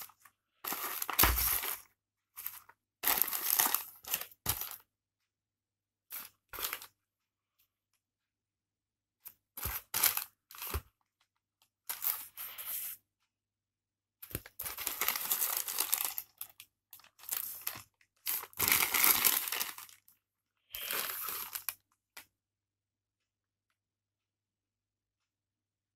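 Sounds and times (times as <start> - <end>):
plastic bag crinkling: 0.6 - 1.8, 2.4 - 4.8, 14.5 - 20.1, 20.8 - 21.8.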